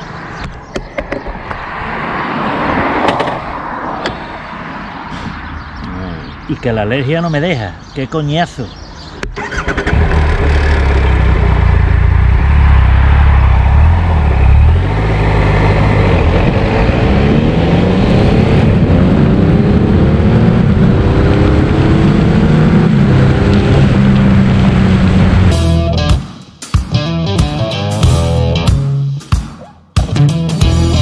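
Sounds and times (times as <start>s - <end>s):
motorcycle engine revving: 9.4s - 26.2s.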